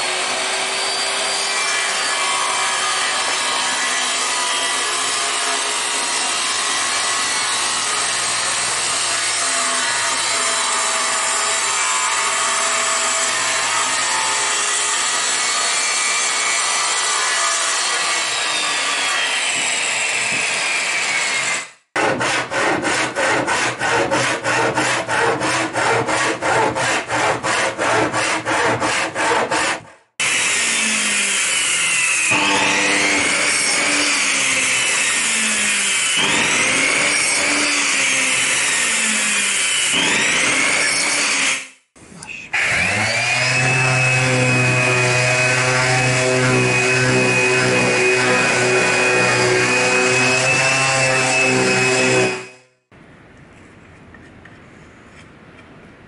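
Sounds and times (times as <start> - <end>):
backsaw cutting plywood: 0.0 - 41.8, 42.5 - 52.6
circular saw cutting plywood: 0.0 - 41.8, 42.5 - 52.6
power tool running: 30.2 - 41.8, 42.6 - 52.6.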